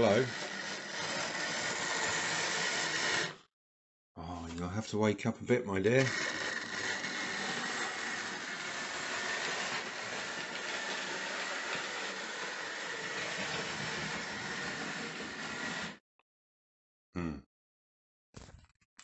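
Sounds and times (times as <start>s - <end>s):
model train electric whirring: 0.0s - 3.4s, 6.0s - 16.0s.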